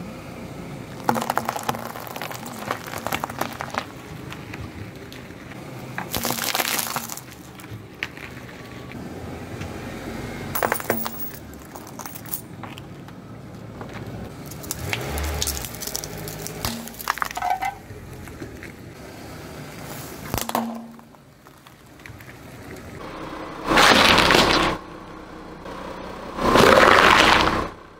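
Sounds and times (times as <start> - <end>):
tyre crunching over coins: 1.0 - 8.9, 10.6 - 18.2
loud rushing crunch: 23.6 - 24.9, 26.4 - 27.8.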